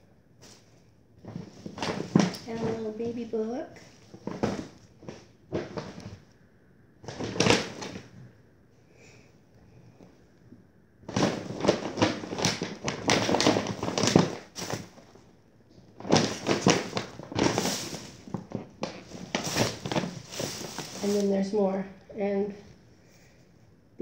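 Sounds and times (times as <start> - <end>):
bags rustling and crinkling: 0.4 - 6.3, 7.0 - 8.3, 11.0 - 15.3, 15.9 - 21.8.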